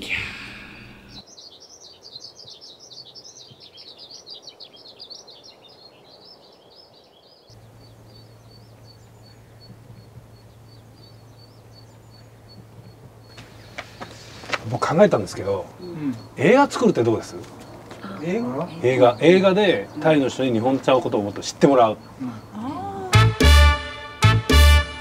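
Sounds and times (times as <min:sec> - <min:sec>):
birds chirping: 0:00.0 - 0:25.0
steady low hum: 0:07.5 - 0:24.2.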